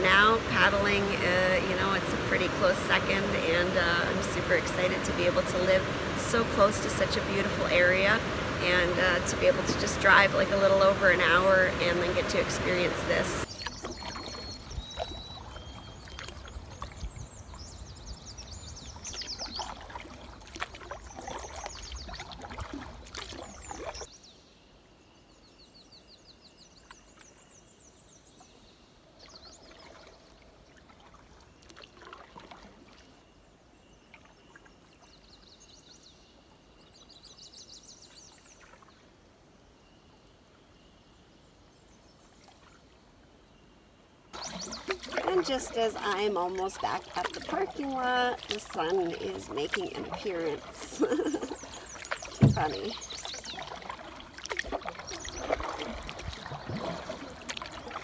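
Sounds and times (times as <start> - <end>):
paddle strokes in water: 0.0 - 24.1, 29.2 - 35.3, 44.3 - 58.0
birds trilling: 44.4 - 54.2.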